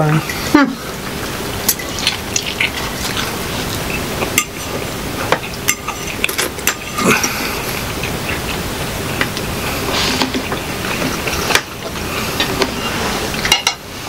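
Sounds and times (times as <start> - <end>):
steady hiss: 0.0 - 14.0
forks clinking on plates: 1.7 - 2.7, 5.4 - 7.3.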